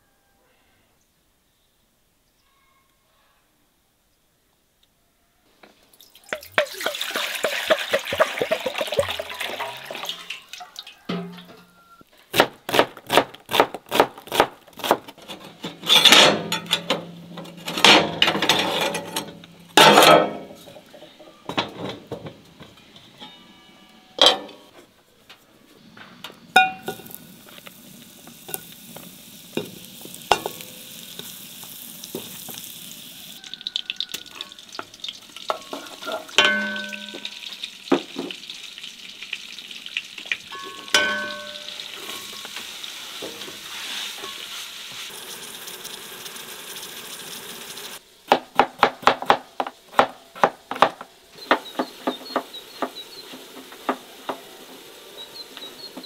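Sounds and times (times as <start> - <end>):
liquid pouring into pot: 6.0 - 10.7, 45.1 - 48.0
sizzling in a pot: 6.0 - 12.0, 26.1 - 48.3, 50.8 - 56.0
metal clanks on pot: 11.1 - 11.7, 15.3 - 20.9, 24.2 - 24.6, 26.6 - 27.2, 29.6 - 30.8, 35.5 - 38.4, 40.5 - 42.5.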